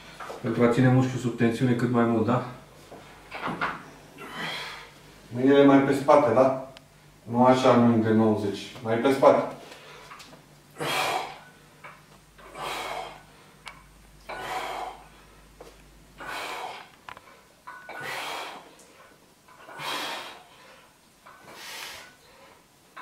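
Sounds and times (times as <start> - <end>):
man breathing hard: 4.2 - 5.0, 10.8 - 11.5, 12.4 - 13.7, 14.3 - 15.5, 16.2 - 22.7.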